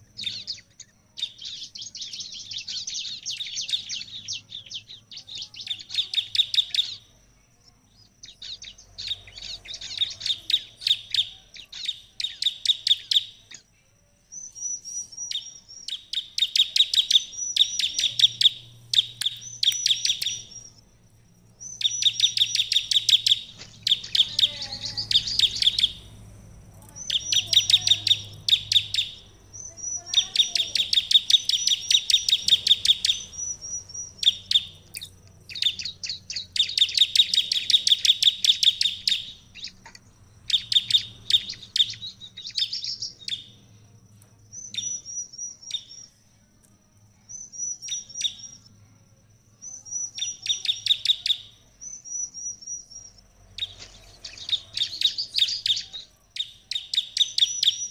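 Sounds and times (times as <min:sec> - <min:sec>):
bird singing sharp chipping notes: 0:00.0 - 0:26.2, 0:26.8 - 0:43.6
thin high bird tone: 0:00.0 - 0:57.9.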